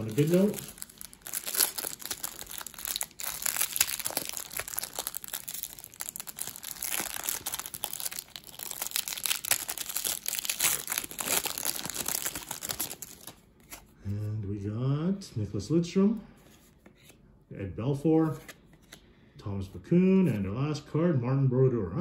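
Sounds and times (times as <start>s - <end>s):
plastic wrapper crinkling and tearing: 0.0s - 13.8s.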